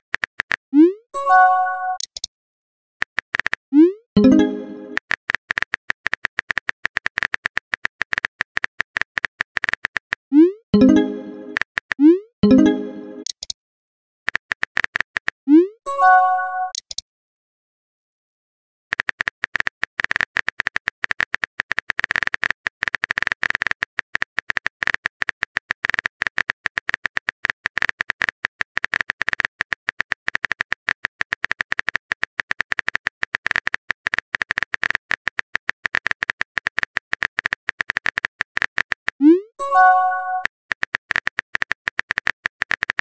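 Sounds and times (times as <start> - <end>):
phone keyboard typing clicks: 1.9 - 2.3, 4.2 - 10.2, 16.7 - 17.0, 39.8 - 43.0.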